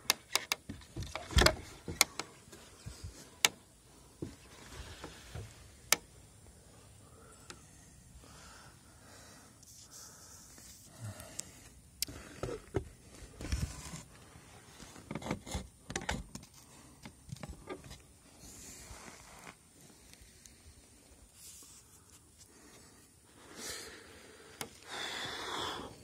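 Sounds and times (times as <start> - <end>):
knocks and scrapes of handling: 12.1 - 18.1.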